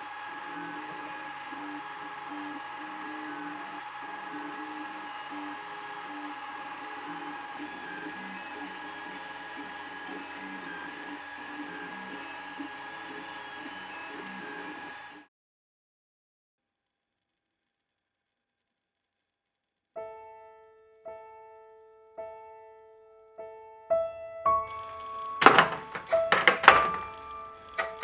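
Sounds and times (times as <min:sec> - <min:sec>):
stepper motors humming: 0:00.0 - 0:15.3, 0:24.7 - 0:28.0.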